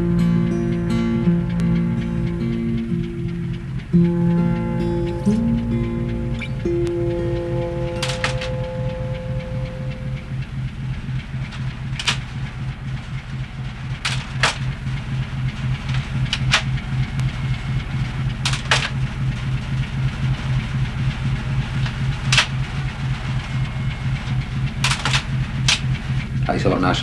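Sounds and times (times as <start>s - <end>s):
ship engine throbbing: 0.0s - 27.0s
sharp clicks or knocks: 2.8s - 17.4s, 18.3s - 19.5s, 21.8s - 22.7s, 24.7s - 26.1s.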